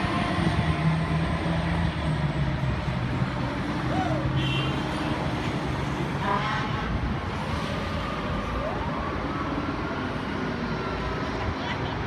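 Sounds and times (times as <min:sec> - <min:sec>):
city traffic noise: 0:00.0 - 0:12.0
fire engine siren wailing: 0:07.5 - 0:11.4.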